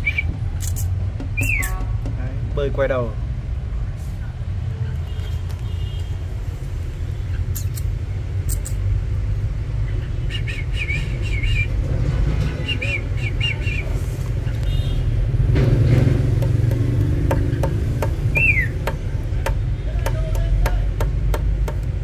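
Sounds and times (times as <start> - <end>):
low rumble of traffic: 0.0 - 22.0
small bird chirping: 18.3 - 18.8.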